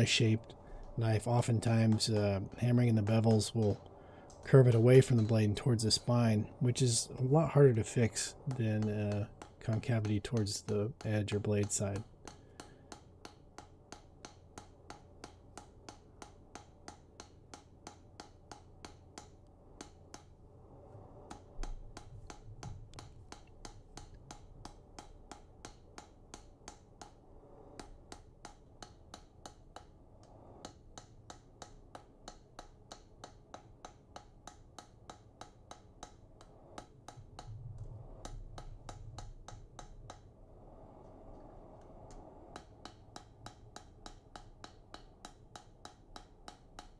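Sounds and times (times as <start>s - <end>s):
low hum: 36.2s - 44.4s
low rumble: 37.2s - 39.2s.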